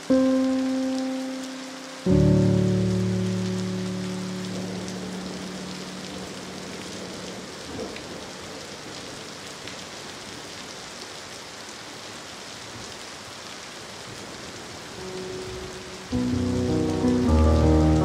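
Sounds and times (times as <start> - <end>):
held musical notes: 0.0 - 6.0, 15.0 - 18.0
rain falling: 0.0 - 18.0.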